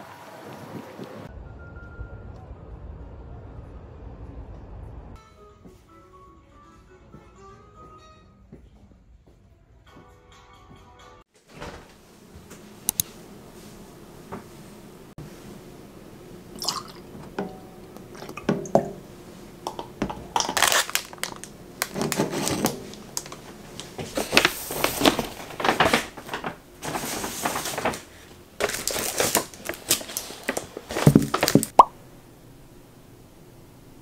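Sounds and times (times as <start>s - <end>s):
milk pouring into glass: 16.6s - 17.1s.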